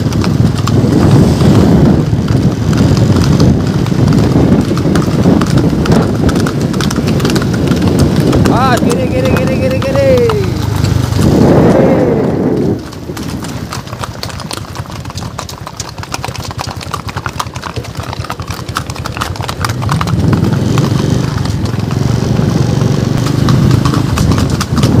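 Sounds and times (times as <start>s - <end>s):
horse hooves clip-clopping on pavement: 0.0s - 25.0s
low rumble: 10.4s - 14.0s.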